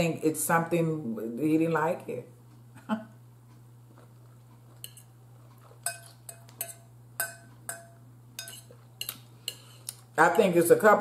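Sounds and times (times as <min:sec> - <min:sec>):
fork clinking against bowl: 0:04.7 - 0:09.9.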